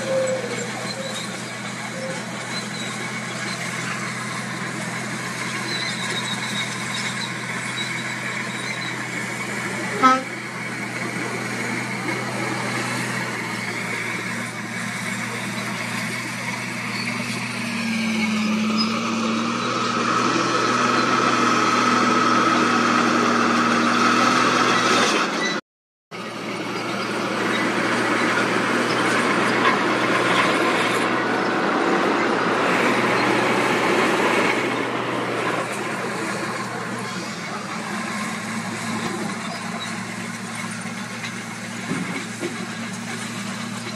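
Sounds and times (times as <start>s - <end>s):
heavy machine diesel engines: 0.0s - 43.9s.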